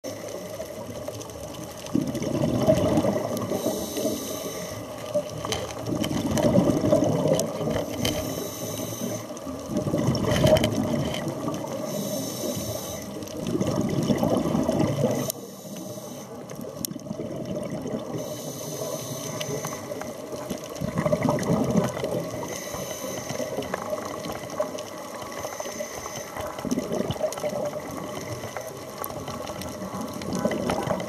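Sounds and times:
exhale bubbling underwater: 0:00.0 - 0:31.0
regulator air hiss: 0:03.5 - 0:05.0, 0:07.8 - 0:09.4, 0:11.8 - 0:13.2, 0:15.0 - 0:16.5, 0:18.2 - 0:20.2, 0:22.4 - 0:23.7, 0:25.4 - 0:26.4.

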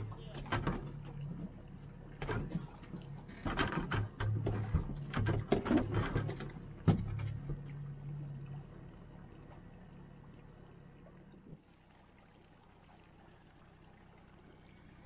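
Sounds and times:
knocks and clatter: 0:00.0 - 0:07.8
outboard motor humming: 0:00.0 - 0:15.0.

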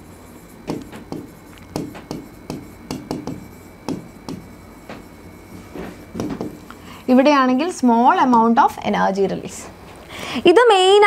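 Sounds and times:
chalk tapping and scratching: 0:00.3 - 0:06.7.

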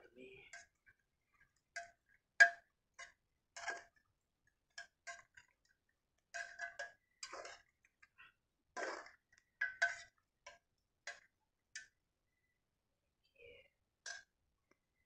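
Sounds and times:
metal spoon scraping a pot: 0:00.5 - 0:04.0, 0:04.7 - 0:05.7, 0:06.3 - 0:11.2.

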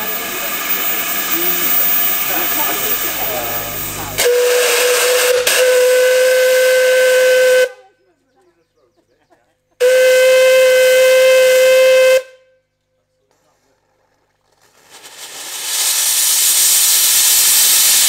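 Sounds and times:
steam hissing: 0:00.0 - 0:07.7, 0:14.5 - 0:18.0
steam locomotive whistle: 0:00.0 - 0:07.8, 0:09.8 - 0:12.5.

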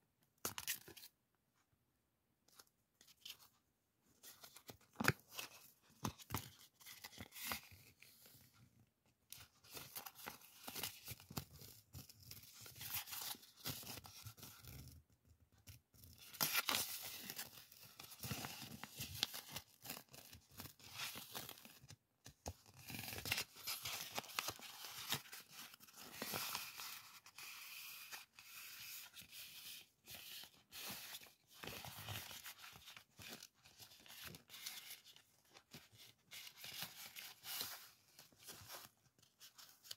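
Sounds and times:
paper rustling: 0:22.6 - 0:39.9.

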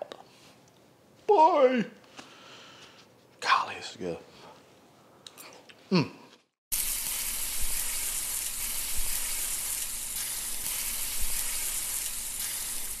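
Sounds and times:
food sizzling in a pan: 0:06.7 - 0:13.0.

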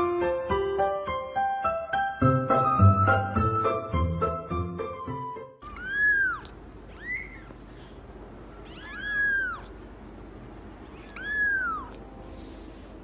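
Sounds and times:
kitten mewing: 0:05.6 - 0:07.7, 0:08.5 - 0:09.8, 0:10.8 - 0:12.1.

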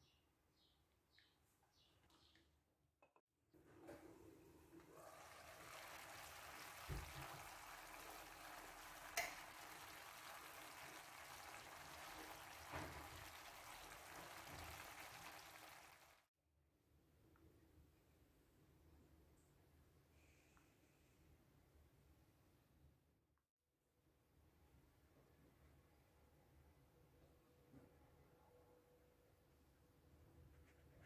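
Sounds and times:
pasta sauce sizzling in a frying pan: 0:05.2 - 0:16.2.

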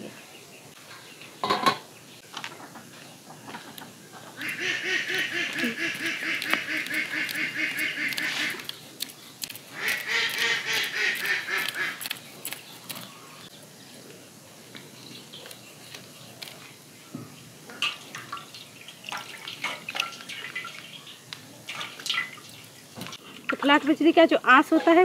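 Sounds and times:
duck quacking rapidly: 0:04.4 - 0:08.6, 0:09.8 - 0:12.0.

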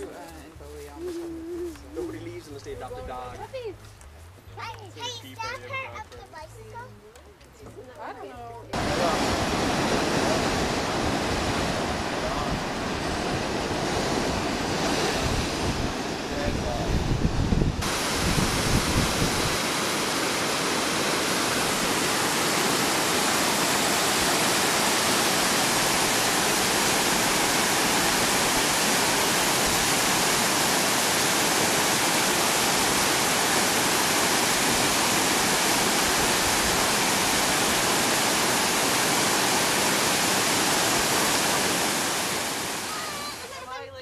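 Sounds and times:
waterfall rushing: 0:08.7 - 0:43.7.

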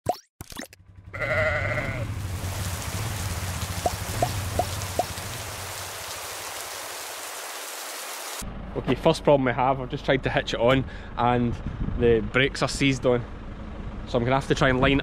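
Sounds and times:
rain hiss: 0:01.8 - 0:08.4.

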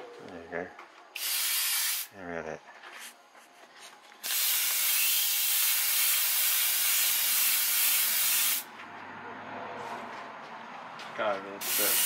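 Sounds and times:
airbrush hissing: 0:01.2 - 0:02.1, 0:04.2 - 0:08.7, 0:11.6 - 0:12.0.

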